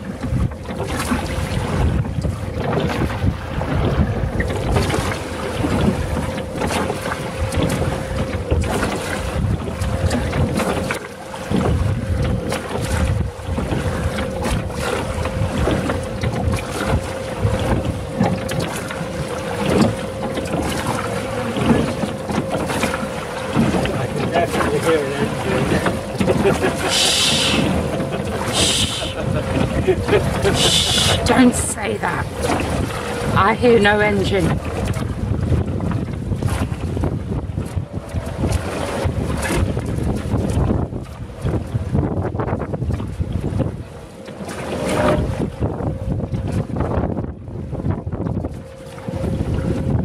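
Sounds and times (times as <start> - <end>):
water noise from rowing boat: 0.0 - 50.0
wind buffeting microphone: 0.0 - 50.0
steady hum: 9.4 - 35.2.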